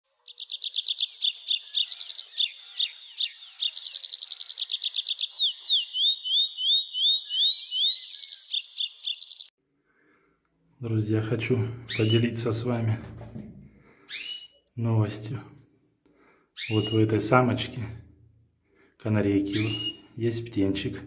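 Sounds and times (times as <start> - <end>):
songbird singing trills: 0.1 - 9.6, 11.9 - 12.3, 16.6 - 17.2, 19.5 - 20.1.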